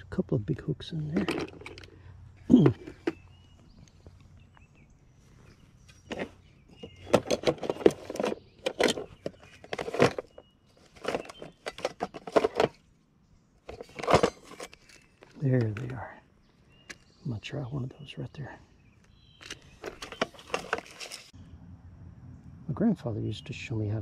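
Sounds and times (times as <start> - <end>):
tackle clicking and rattling: 1.1 - 3.2.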